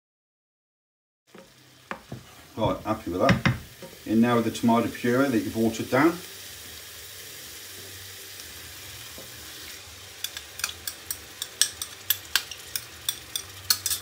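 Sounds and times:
paste sizzling in a frying pan: 1.3s - 14.0s
spoon clicking and scraping: 10.2s - 14.0s.

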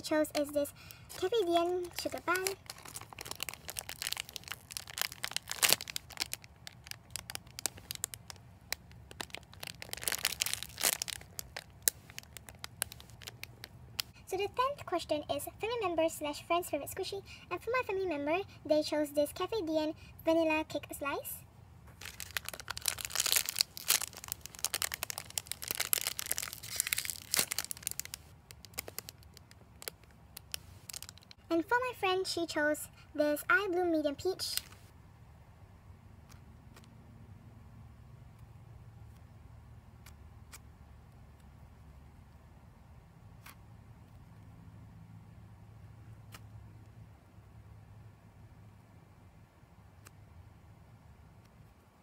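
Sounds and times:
plastic bag crinkling: 0.0s - 14.1s, 21.9s - 31.4s, 34.4s - 34.8s.

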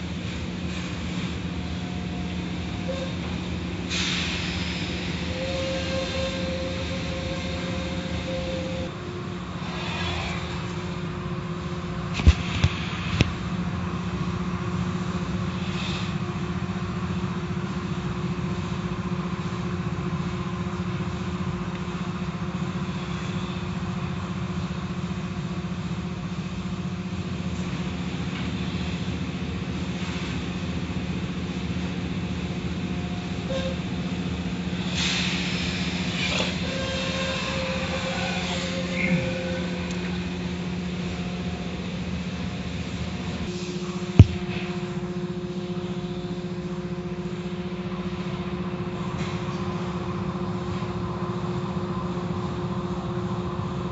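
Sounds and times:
sharp knocks: 44.2s - 44.5s.

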